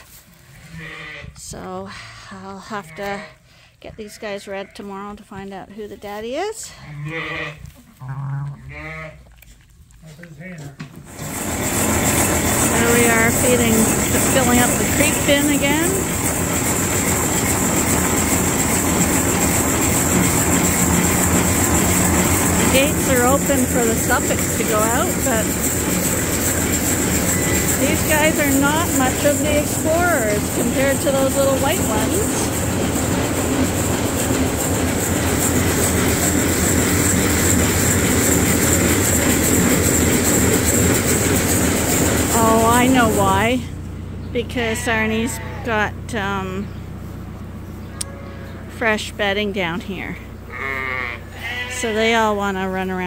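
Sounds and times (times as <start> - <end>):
machinery rumbling and rattling: 10.8 - 53.0.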